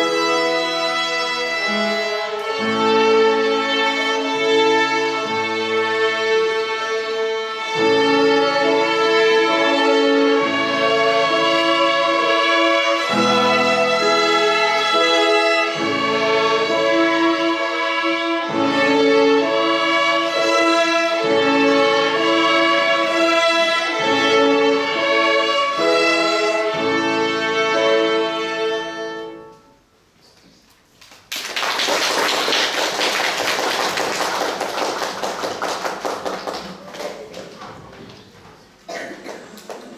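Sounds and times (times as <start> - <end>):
violin ensemble playing: 0.0 - 29.8
piano chords: 0.0 - 30.0
audience applauding: 31.0 - 38.2, 39.2 - 39.9.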